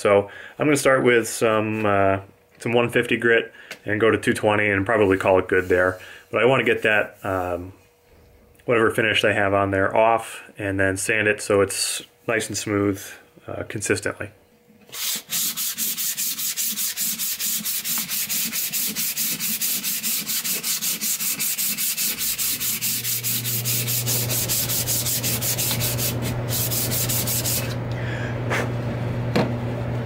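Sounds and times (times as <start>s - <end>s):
sandpaper rasping on wooden handle: 14.9s - 27.8s
low steady hum: 15.8s - 30.0s.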